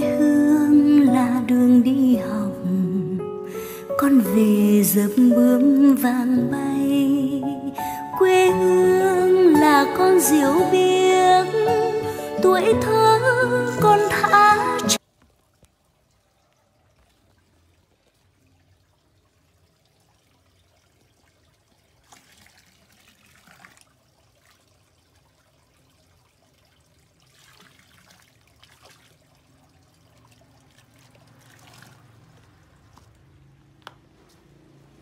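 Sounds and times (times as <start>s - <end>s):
faint water trickling and splashing: 12.6s - 35.0s.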